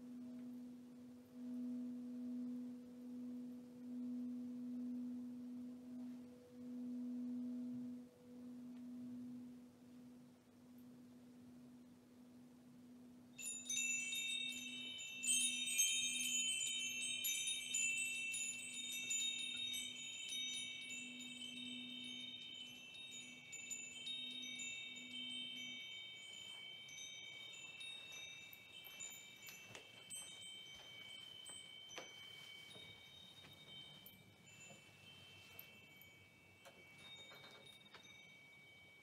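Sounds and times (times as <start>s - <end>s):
singing bowl hum: 0.0s - 39.0s
metal chimes tinkling: 13.4s - 39.0s.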